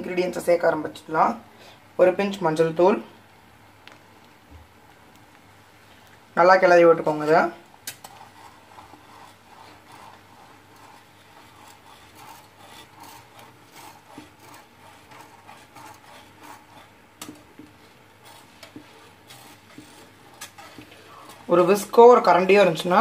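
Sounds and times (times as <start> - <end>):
whisk swishing in pan: 6.9 - 23.0.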